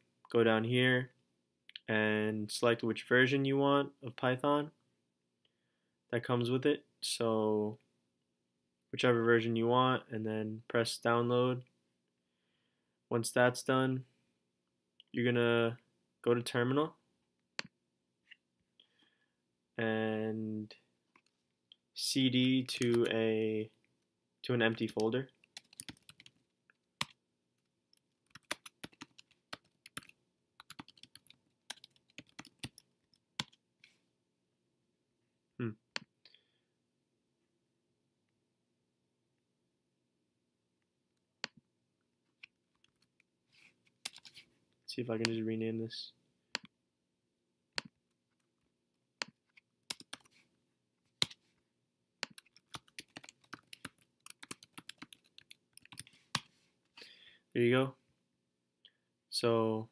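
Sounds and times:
computer keyboard typing: 24.8s - 26.3s, 27.9s - 33.6s, 44.0s - 44.3s, 49.2s - 50.4s, 52.2s - 56.4s.

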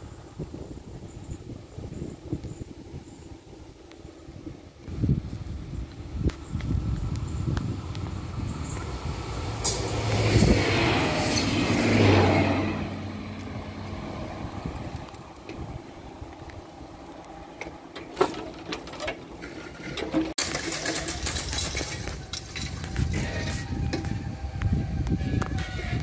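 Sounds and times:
vehicle engine hum passing: 6.0s - 17.9s.

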